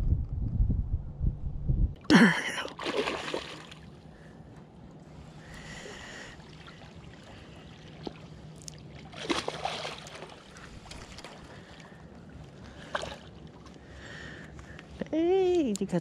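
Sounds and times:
river water sloshing: 0:02.3 - 0:14.8
water splash: 0:02.5 - 0:03.9, 0:06.4 - 0:11.4.

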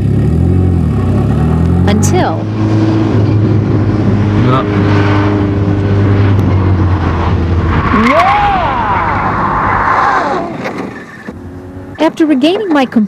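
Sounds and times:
race car engine running hard: 0:00.0 - 0:07.9
tyre squeal: 0:07.8 - 0:11.3.

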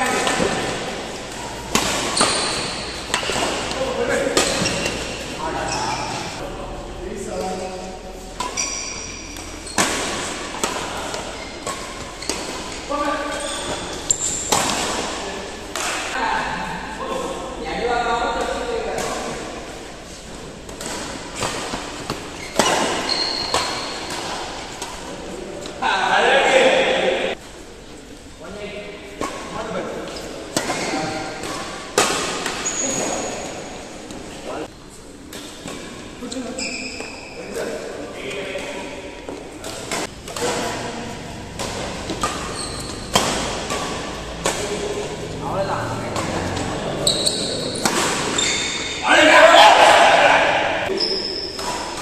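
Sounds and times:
rackets hitting shuttlecock: 0:00.0 - 0:05.4, 0:07.3 - 0:16.2, 0:20.5 - 0:25.8, 0:29.2 - 0:34.3, 0:38.5 - 0:52.0
racket striking shuttlecock: 0:00.1 - 0:05.3, 0:13.8 - 0:16.2, 0:41.4 - 0:45.2, 0:47.6 - 0:49.0
brief high squeak: 0:22.4 - 0:24.1, 0:47.0 - 0:49.0.

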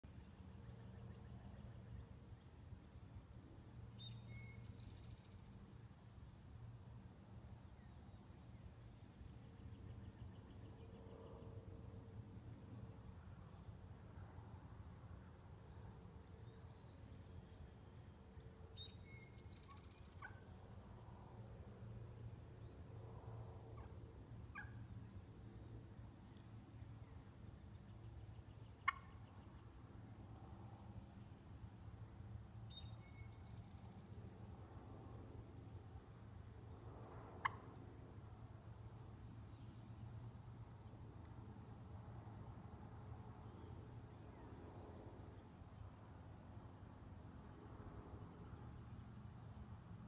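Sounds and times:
turkey clucks and purrs: 0:28.8 - 0:29.4, 0:37.4 - 0:37.6.

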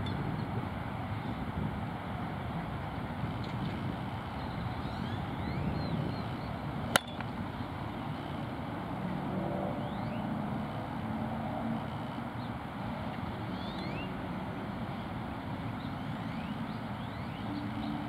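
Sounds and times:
distant road traffic rumble: 0:00.0 - 0:18.0
faint bird chirps: 0:04.4 - 0:06.6, 0:09.8 - 0:10.3, 0:13.5 - 0:14.2, 0:15.8 - 0:18.0
bat hitting softball crack: 0:06.9 - 0:07.4.

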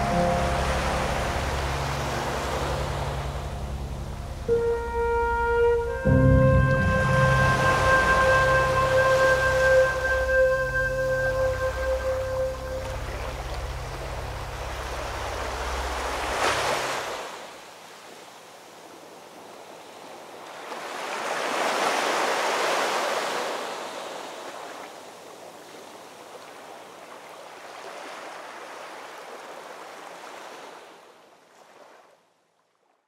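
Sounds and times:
background music: 0:00.0 - 0:16.8
sea waves breaking: 0:00.0 - 0:18.2, 0:19.4 - 0:24.9, 0:25.7 - 0:32.2.

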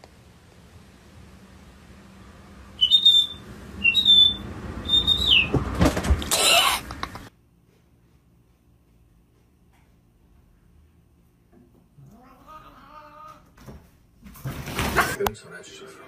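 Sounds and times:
high whistled chirps: 0:02.8 - 0:05.5.

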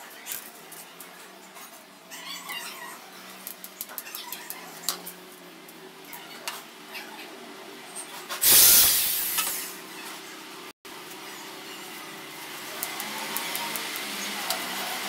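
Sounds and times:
electric drill burst: 0:08.4 - 0:09.7.

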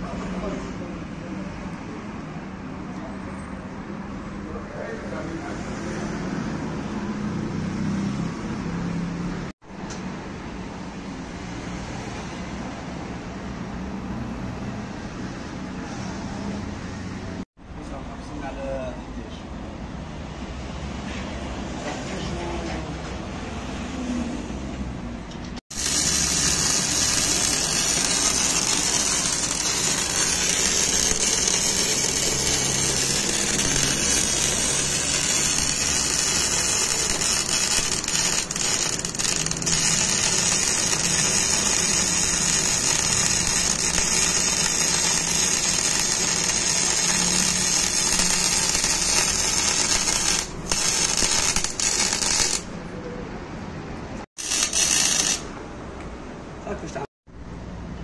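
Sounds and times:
welder arc buzzing: 0:25.7 - 0:52.7, 0:54.4 - 0:55.6.

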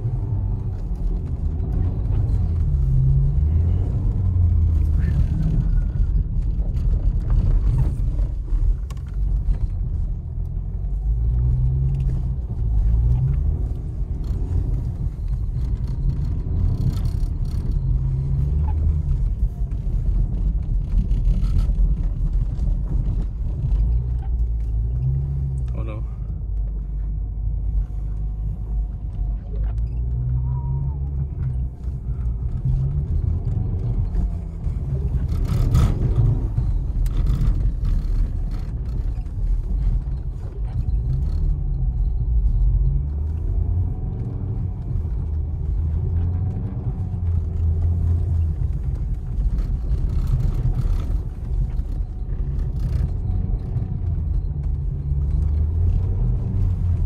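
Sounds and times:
heavy rumble of tyres on road: 0:00.0 - 0:57.0
car engine revving: 0:27.3 - 0:57.0.

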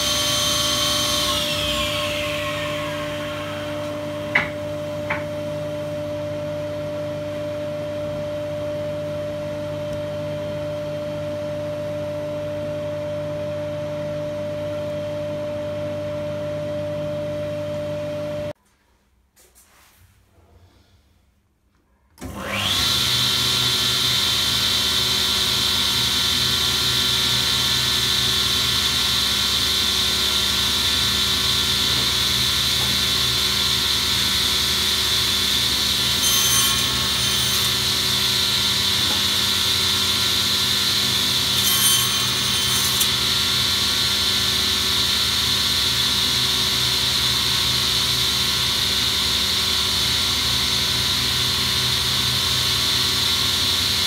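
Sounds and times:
saw blade cutting wood: 0:00.0 - 0:05.2, 0:34.2 - 0:44.7
panel saw whining: 0:00.0 - 0:05.5, 0:22.2 - 0:47.8.

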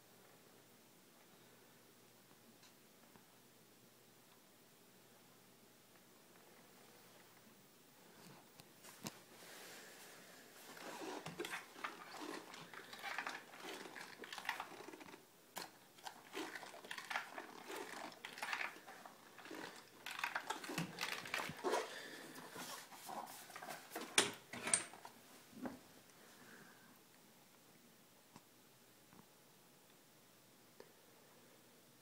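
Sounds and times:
plastic toy truck handling noise: 0:10.7 - 0:25.2.

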